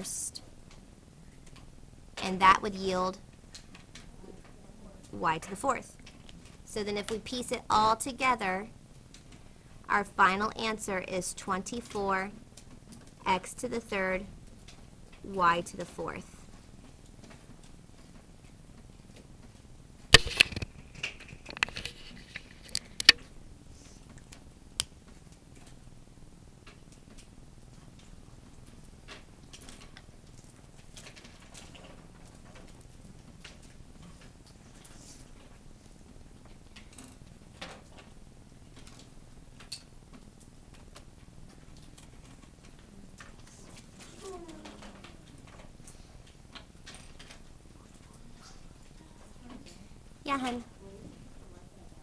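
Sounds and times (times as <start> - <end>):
faint clicks and light taps: 0.6 - 2.2, 16.4 - 26.0, 26.6 - 50.7
objects clicking and knocking on desk: 20.1 - 23.2.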